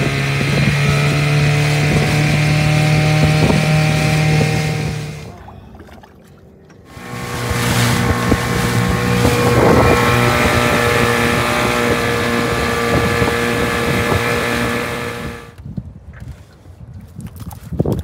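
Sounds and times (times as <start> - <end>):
wind on microphone: 0.0 - 5.3, 6.9 - 18.0
outboard motor running: 0.0 - 15.6
water rushing past hull: 0.0 - 15.6.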